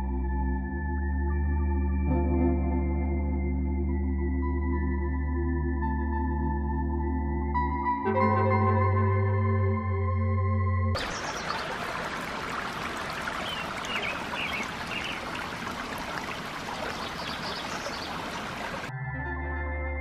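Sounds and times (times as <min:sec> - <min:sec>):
stream trickling over rocks: 0:11.0 - 0:18.9.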